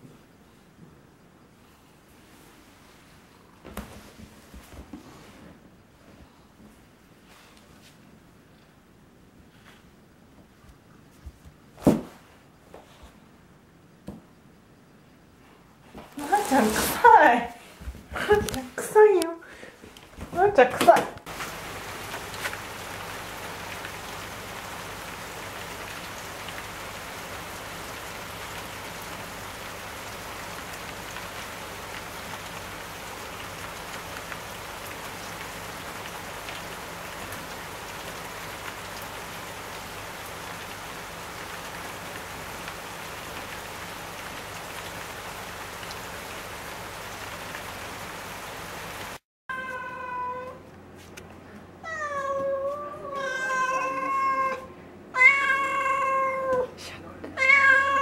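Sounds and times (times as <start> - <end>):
rain on a wooden deck: 1.5 - 8.4, 15.9 - 50.6, 53.2 - 54.6, 55.2 - 56.6, 57.4 - 58.0
cat meowing: 49.5 - 50.6, 51.8 - 56.7, 57.4 - 58.0.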